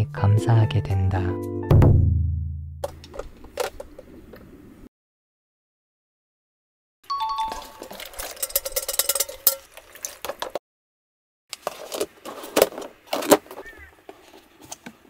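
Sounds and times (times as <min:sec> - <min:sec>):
dishes and utensils clinking: 0:07.1 - 0:10.6.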